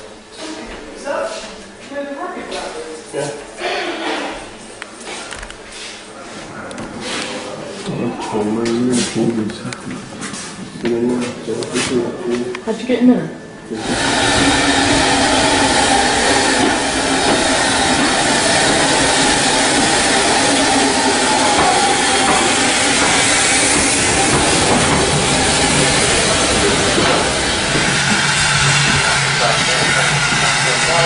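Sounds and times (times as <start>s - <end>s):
steam train hissing: 13.7s - 31.0s
steam train rumble: 13.7s - 31.0s.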